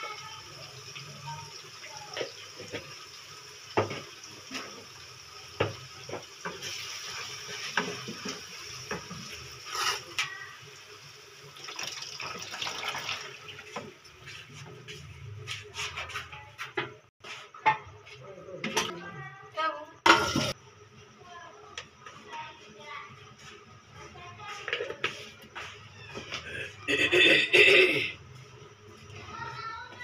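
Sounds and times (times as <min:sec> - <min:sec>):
sauce sizzling in a pan: 0:00.0 - 0:14.8
liquid pouring into pan: 0:11.5 - 0:13.8.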